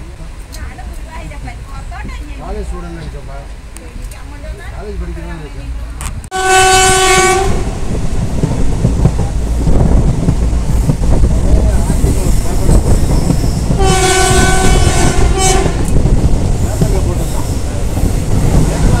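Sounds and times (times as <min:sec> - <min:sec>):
train wheels rumbling: 0:00.0 - 0:19.0
train horn: 0:06.3 - 0:07.8, 0:13.8 - 0:16.0, 0:18.8 - 0:19.0.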